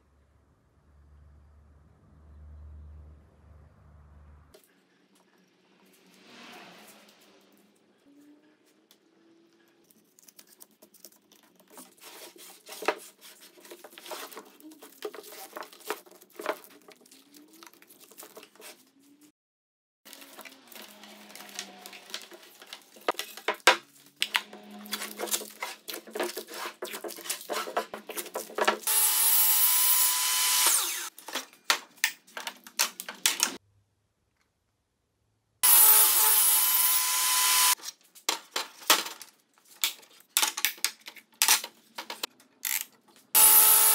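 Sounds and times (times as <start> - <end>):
tape crinkling and rubbing: 9.8 - 19.3, 20.1 - 28.9.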